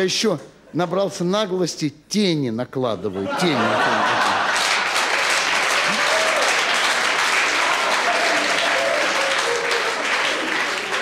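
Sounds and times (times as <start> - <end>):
audience laughing: 3.1 - 6.3, 7.4 - 11.0
audience applauding: 3.6 - 11.0.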